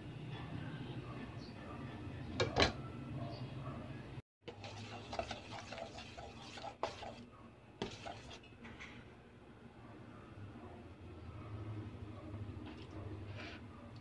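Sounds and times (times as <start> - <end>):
spoon scraping bowl: 4.5 - 8.5.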